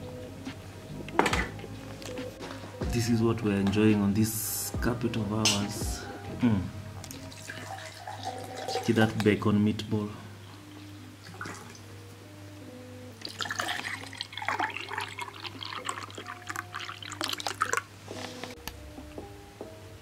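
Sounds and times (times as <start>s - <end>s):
light background music: 0.0s - 20.0s
juice pouring into a glass: 7.0s - 9.2s, 13.2s - 17.9s.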